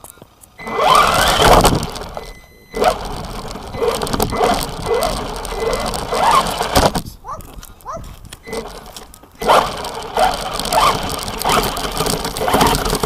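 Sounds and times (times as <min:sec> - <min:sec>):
foot kicking toy car: 0:00.0 - 0:07.6
faint steady whine: 0:00.0 - 0:13.0
wind noise: 0:00.7 - 0:08.8.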